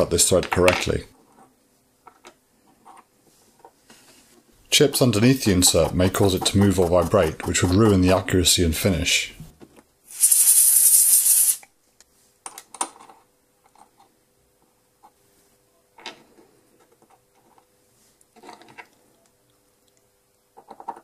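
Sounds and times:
faint steady hum: 0.0 - 21.0
burst of blown air: 10.1 - 11.6.

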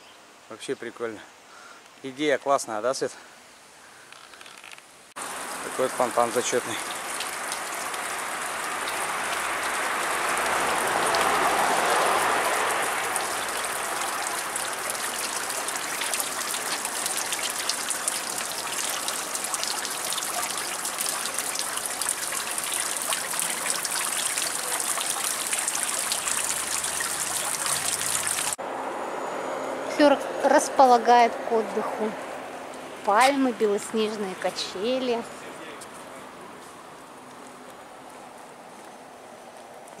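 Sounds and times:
fountain water splashing into basin: 5.2 - 28.6.

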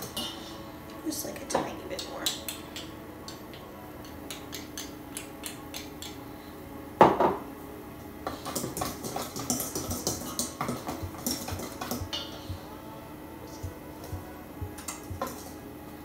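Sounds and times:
knock against metal bowl: 7.0 - 7.4
utensil stirring in metal bowl: 8.2 - 12.7, 13.5 - 15.6.

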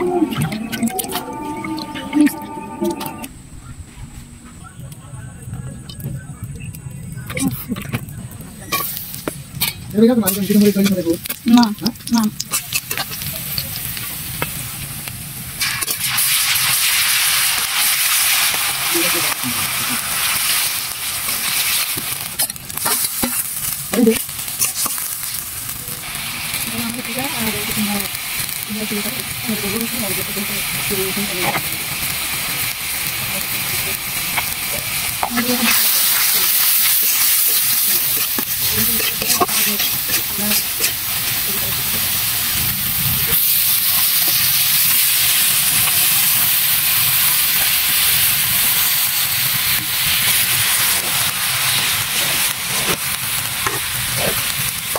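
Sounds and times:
garlic sizzling in hot oil: 6.5 - 54.9
spatula scraping and knocking pan: 37.2 - 41.1.

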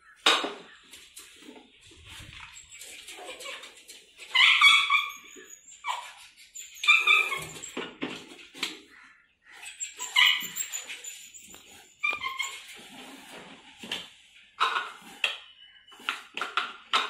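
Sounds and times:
dog whining and barking: 4.3 - 7.8, 9.7 - 12.6.

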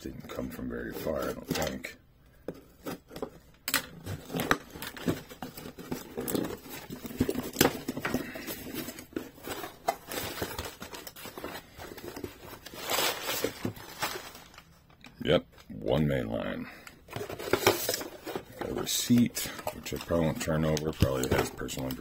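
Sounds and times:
packing paper rustling: 2.8 - 15.1, 16.9 - 22.0.

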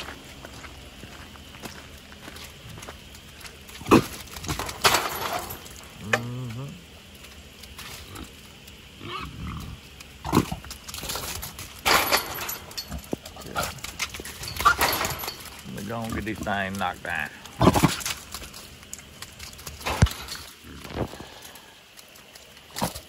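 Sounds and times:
boars hitting wire panels: 3.8 - 6.4, 10.1 - 21.4
low boar grunt: 6.0 - 6.9, 9.0 - 10.7.

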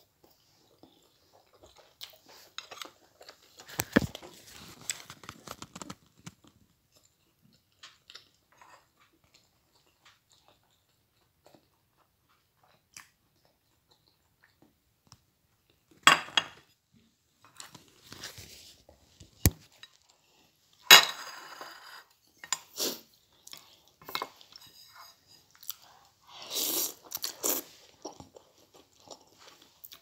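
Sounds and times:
chewing: 0.0 - 16.0, 22.1 - 30.0.

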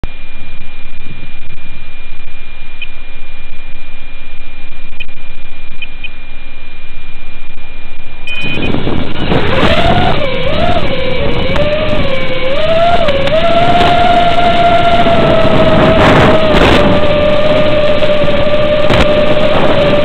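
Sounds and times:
quadcopter motors whining: 8.2 - 20.0
thin steady high tone: 8.2 - 20.0.

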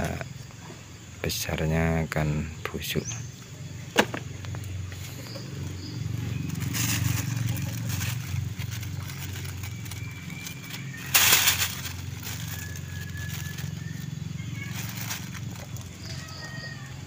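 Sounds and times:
plastic bags crinkling: 4.9 - 16.9.

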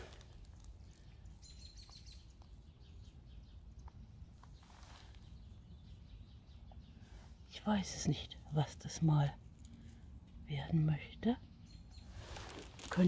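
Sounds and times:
rustling grass and moss: 0.0 - 10.9, 11.8 - 13.0.

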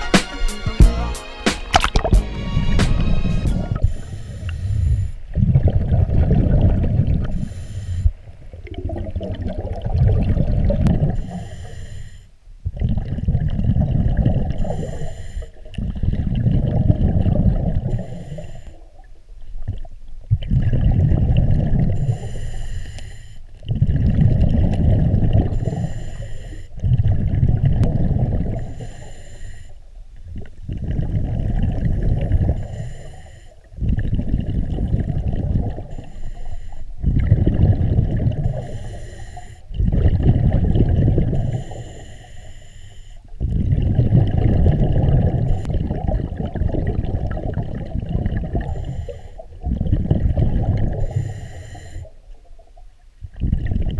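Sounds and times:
exhaled bubbles rumbling: 1.8 - 11.5, 12.6 - 22.4, 23.6 - 29.0, 30.1 - 36.2, 36.9 - 42.0, 43.3 - 53.9
diver breathing through regulator: 2.2 - 5.4, 7.2 - 8.2, 11.0 - 12.4, 14.5 - 15.7, 17.8 - 18.9, 21.9 - 23.5, 24.8 - 27.0, 28.1 - 29.9, 30.7 - 34.0, 34.6 - 43.6, 48.3 - 52.3.

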